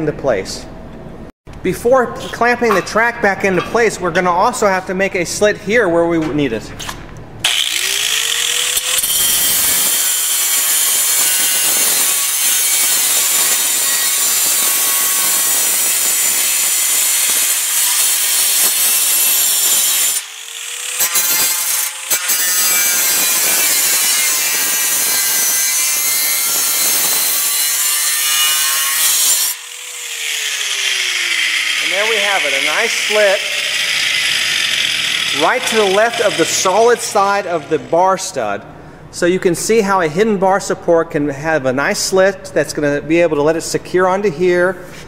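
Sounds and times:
angle grinder cutting steel: 7.4s - 38.0s.

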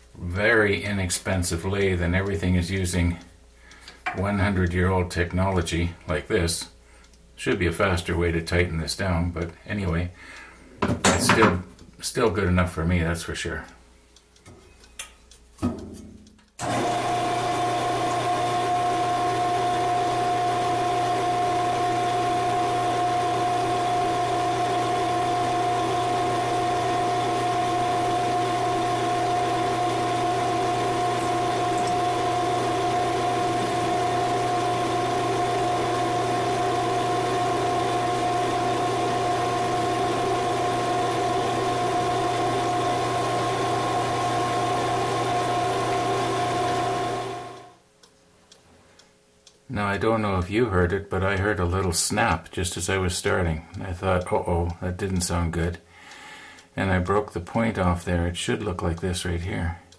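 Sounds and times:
lathe motor whine: 16.6s - 47.8s.

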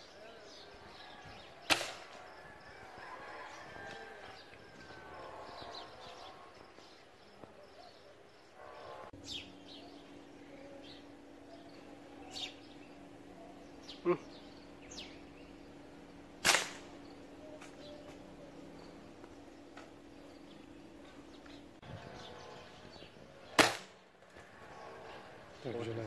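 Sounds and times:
birds whistling: 0.0s - 23.8s
faint steady hum: 0.0s - 26.0s
air rifle shot: 1.6s - 2.2s, 16.4s - 17.0s, 23.6s - 24.0s.

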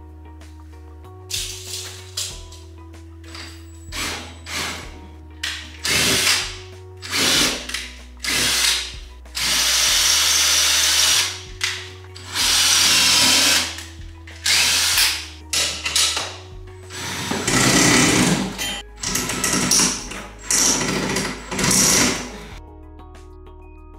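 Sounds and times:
cordless drill running in bursts: 3.9s - 4.9s, 5.8s - 11.4s, 12.2s - 13.8s, 14.4s - 15.4s, 16.9s - 22.5s.

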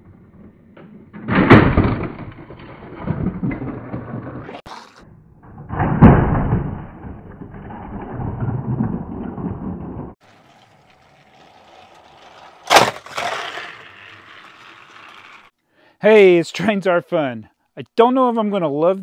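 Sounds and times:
toy train rattling along track: 10.2s - 15.5s.

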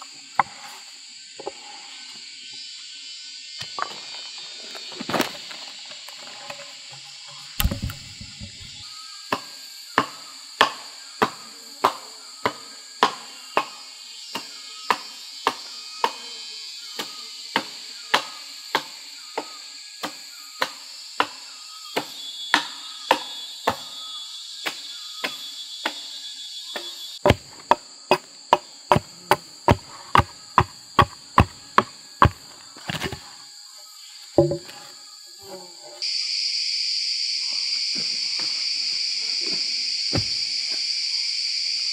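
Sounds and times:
insects shrilling: 0.0s - 41.9s
blade chopping wooden pole: 7.6s - 8.8s, 27.2s - 33.3s, 34.4s - 34.8s.

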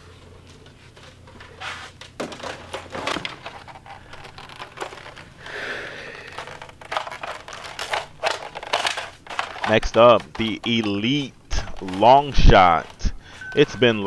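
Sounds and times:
rustling: 0.0s - 14.0s
plastic clicks and knocks: 2.2s - 5.6s, 6.2s - 13.7s.

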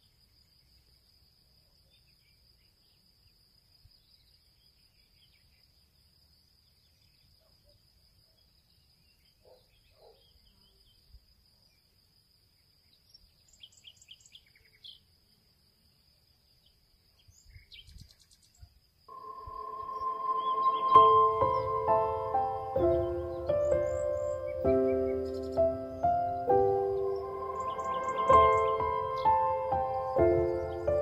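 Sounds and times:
high-pitched insect whine: 19.1s - 31.0s.

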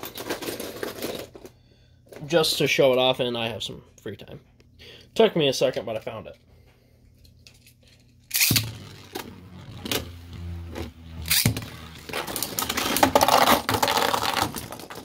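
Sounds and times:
spinning tops clashing and rattling: 8.3s - 9.2s, 11.3s - 14.6s
spinning top landing clack: 8.3s - 10.2s
spinning top whirring: 8.3s - 14.7s.

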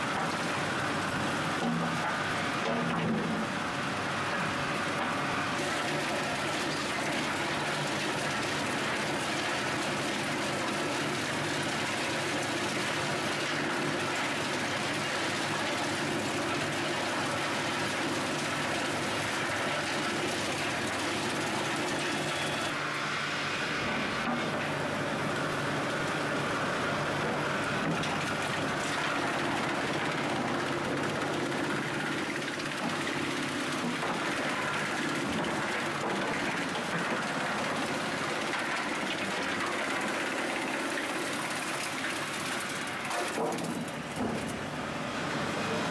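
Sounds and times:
wood chipper hum: 0.0s - 45.9s
vibrating conveyor rattling: 27.3s - 44.8s.

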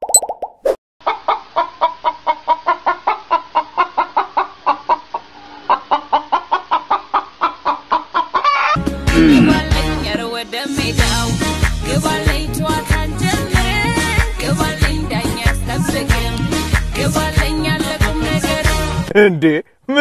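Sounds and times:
hens clucking: 1.0s - 8.8s.

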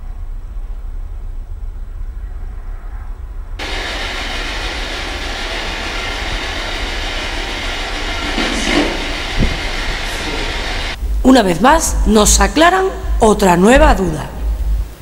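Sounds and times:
low steady rumble: 0.0s - 15.0s
loud hiss of radio static: 3.6s - 11.6s.

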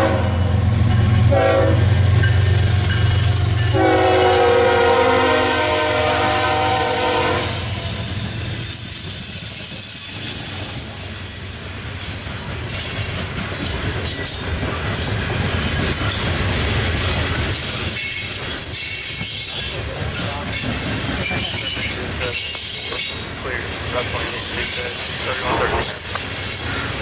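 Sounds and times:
train horn: 0.0s - 0.6s, 1.2s - 2.1s, 3.6s - 8.1s
train wheels rumbling on rails: 0.0s - 27.0s
high-pitched wheel squeal: 6.8s - 10.7s.

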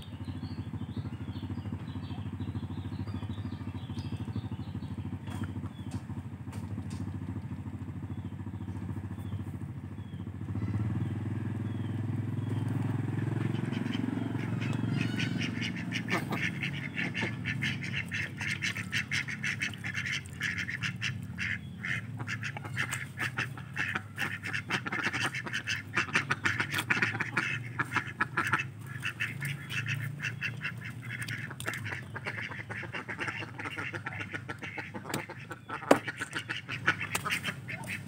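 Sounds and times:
ducks quacking: 10.4s - 38.0s.

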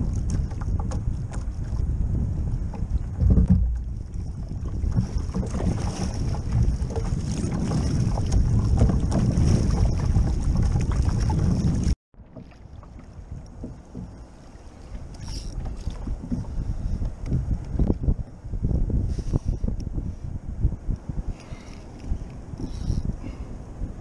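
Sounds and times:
wind noise on microphone: 0.0s - 12.0s, 12.7s - 24.0s
paddle splashing water: 0.0s - 18.0s.

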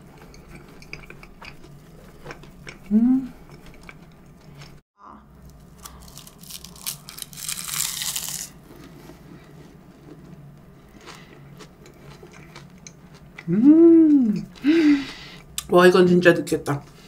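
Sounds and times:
chewing with small crackles: 0.0s - 4.8s, 8.6s - 15.7s
crunchy bites into pastry: 5.5s - 9.0s.

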